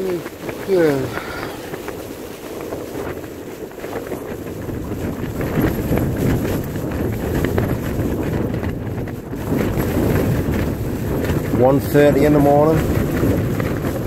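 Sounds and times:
tent fabric flapping: 0.0 - 14.0
wind buffeting a tent: 0.0 - 14.0.

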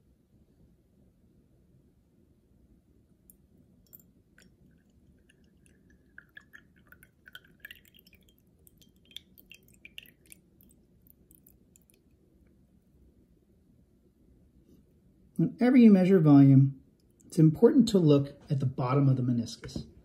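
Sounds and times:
water pouring into glass: 3.8 - 12.0.

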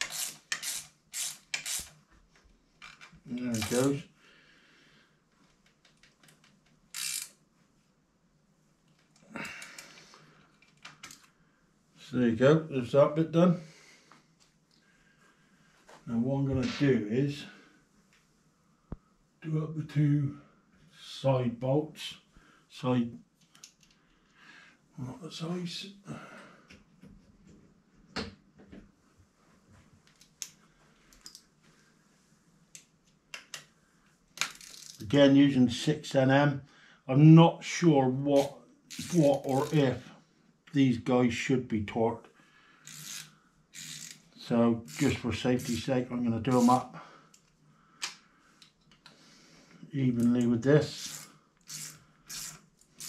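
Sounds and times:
ratchet wrench clicking: 0.0 - 2.0, 6.9 - 7.4, 34.4 - 35.0, 38.9 - 39.8, 42.8 - 44.2, 44.9 - 45.8, 50.9 - 53.0.

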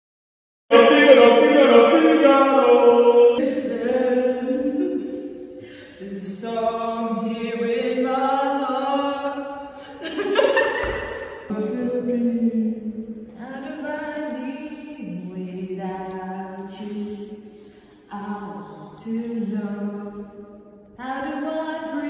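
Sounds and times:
person chant-like singing: 0.7 - 6.6.

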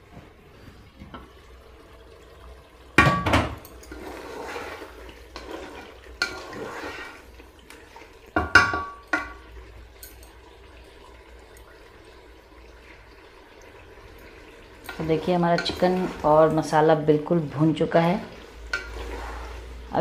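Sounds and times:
spatula scraping metal pot: 3.8 - 7.4, 14.9 - 16.8, 18.3 - 19.8.

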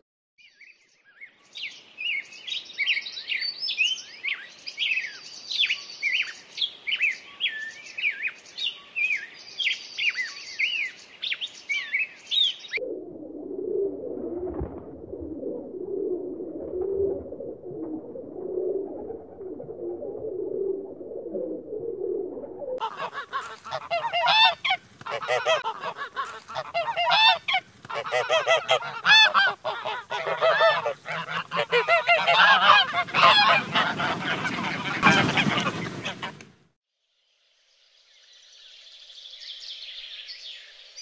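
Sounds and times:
pigeons cooing: 15.2 - 36.4.

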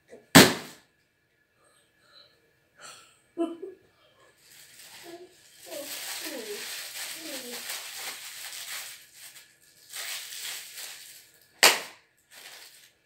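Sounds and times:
balloon bursting: 0.3 - 0.8, 11.6 - 12.0
rustling: 4.3 - 11.4, 12.3 - 13.0.

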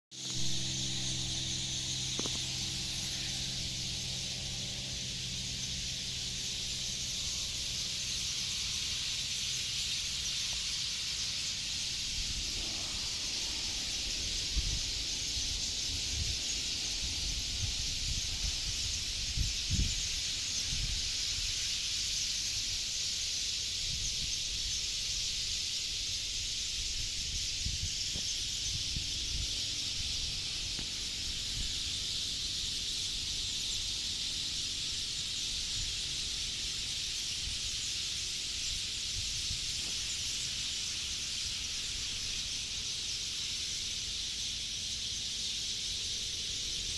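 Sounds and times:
sparrows chirping in chorus: 0.1 - 46.9.

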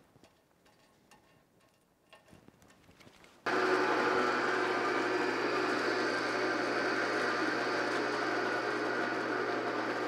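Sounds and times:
drill press boring into steel: 3.5 - 10.0.

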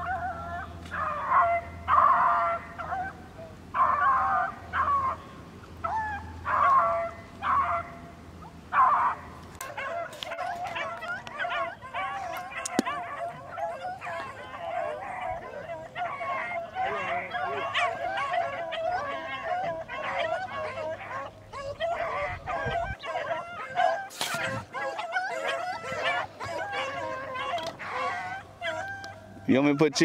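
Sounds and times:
dogs baying: 0.0 - 30.0.

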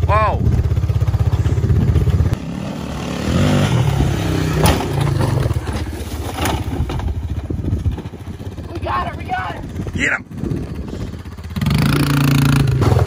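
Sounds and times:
atv engine running: 0.0 - 13.0
sharp knocks of quad tipping over: 4.3 - 7.1.

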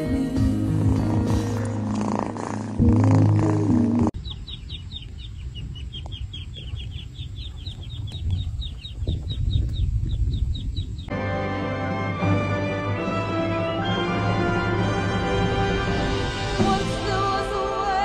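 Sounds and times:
baby chicks peeping: 4.2 - 11.1.

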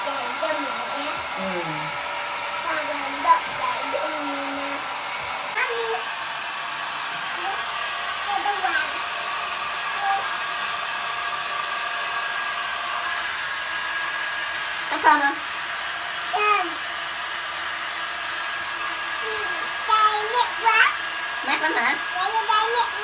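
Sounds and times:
hair dryer blowing: 0.0 - 23.0.

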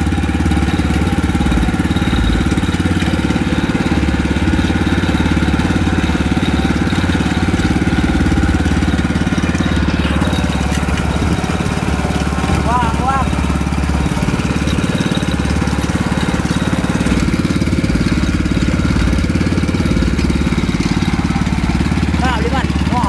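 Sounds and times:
boat engine running: 0.0 - 23.0.

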